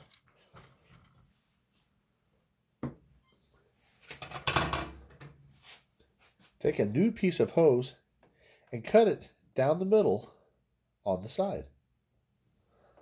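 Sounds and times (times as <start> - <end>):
parts rustling and clicking: 0.0 - 2.0.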